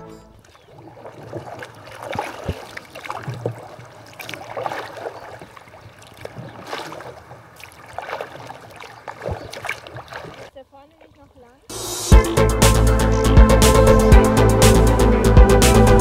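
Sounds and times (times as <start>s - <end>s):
kayak paddle splashing in water: 0.3s - 11.5s
water dripping off paddle: 0.4s - 10.5s.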